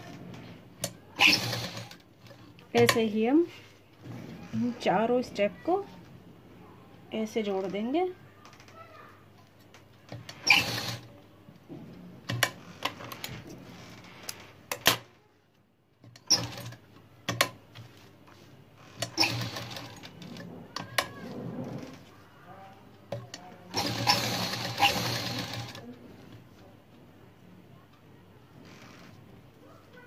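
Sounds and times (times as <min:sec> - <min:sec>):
sewing machine stitching: 0:00.0 - 0:03.0, 0:10.1 - 0:11.1, 0:16.2 - 0:17.6, 0:18.9 - 0:22.1, 0:23.7 - 0:25.9.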